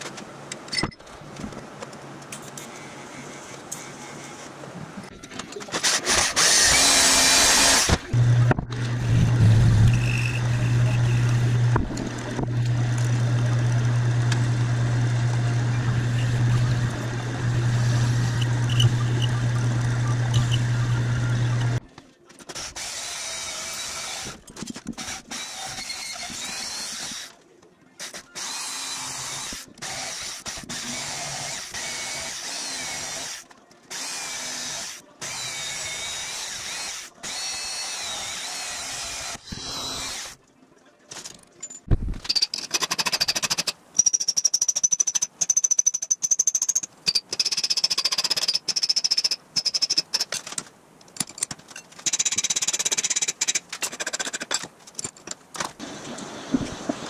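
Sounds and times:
band saw cutting steel: 0:05.8 - 0:21.8
high squeal: 0:09.7 - 0:11.3.

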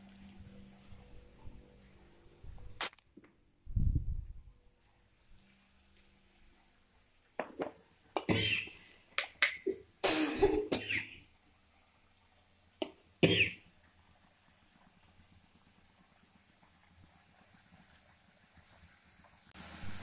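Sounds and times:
person coughing: 0:08.2 - 0:08.8, 0:10.0 - 0:11.2, 0:13.2 - 0:13.6.

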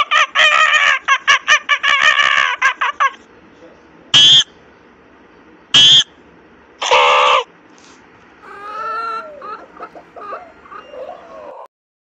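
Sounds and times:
rooster calling: 0:06.8 - 0:07.5, 0:08.4 - 0:11.7.

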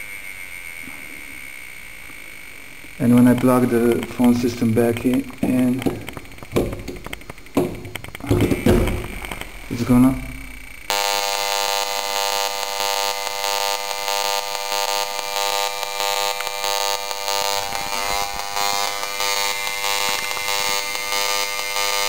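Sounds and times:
loudspeaker rasping buzz: 0:09.8 - 0:22.0.

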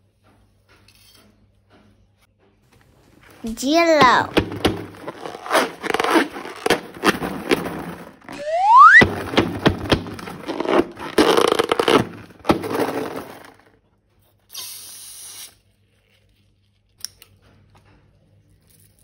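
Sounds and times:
slime squelching and crackling: 0:03.3 - 0:12.7
short hiss: 0:14.5 - 0:15.6.

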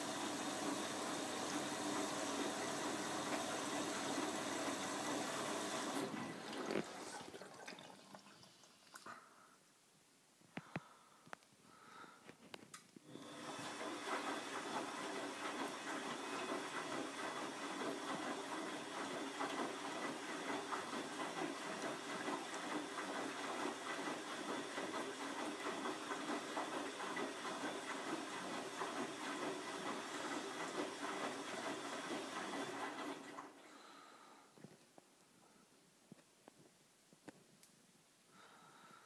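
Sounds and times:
water rushing into washing machine: 0:00.0 - 0:08.8, 0:13.1 - 0:34.2.

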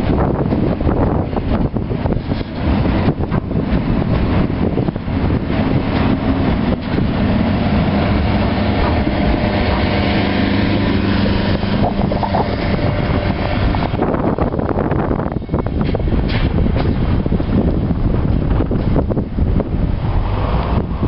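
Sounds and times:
train wheels rumbling on rails: 0:00.0 - 0:21.0
wind buffeting microphone: 0:00.0 - 0:21.0
steady droning tone: 0:06.2 - 0:15.8.

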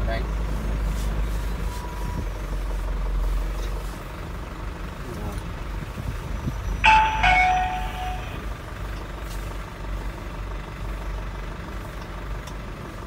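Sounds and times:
truck engine running: 0:00.2 - 0:13.0
two-tone falling chime: 0:06.8 - 0:08.5.

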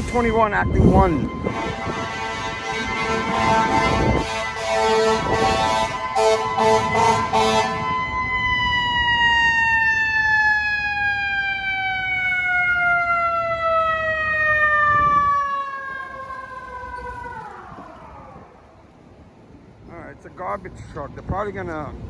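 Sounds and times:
fire engine air horn blasts: 0:00.0 - 0:08.2
mechanical siren wailing: 0:00.0 - 0:18.8.

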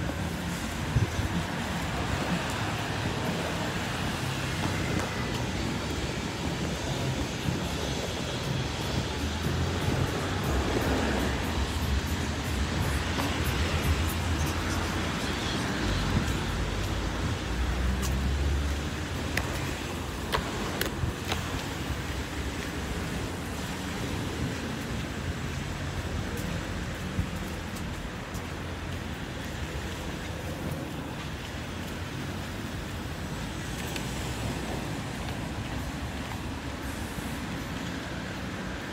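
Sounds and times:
street traffic rumble: 0:00.0 - 0:38.9.

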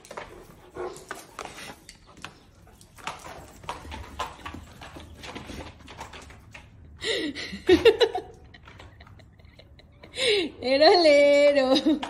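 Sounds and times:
dog claws clattering: 0:00.0 - 0:07.0.

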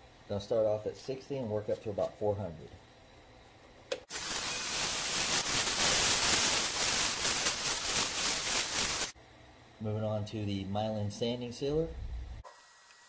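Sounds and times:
sandpaper on spinning wood: 0:04.1 - 0:09.1.

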